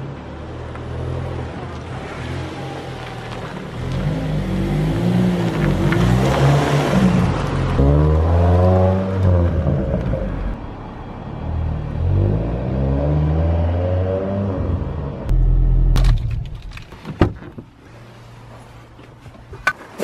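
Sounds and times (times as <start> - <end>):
tyre and road noise: 0.0 - 20.0
car engine accelerating: 1.0 - 10.6.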